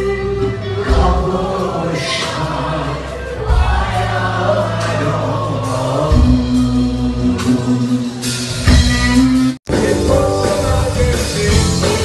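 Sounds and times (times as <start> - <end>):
live band music: 0.0 - 12.0
person singing: 0.0 - 12.0.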